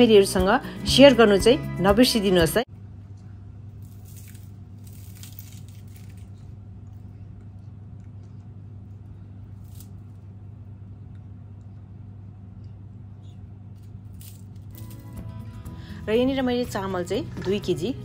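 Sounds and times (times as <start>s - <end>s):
steady low hum: 2.6s - 18.0s
fried bread tearing with crackling: 3.7s - 6.9s, 9.4s - 10.4s, 13.8s - 15.3s.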